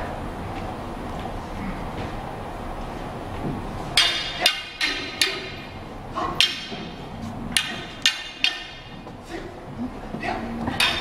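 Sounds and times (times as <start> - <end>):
wooden staffs clacking: 3.9 - 11.0.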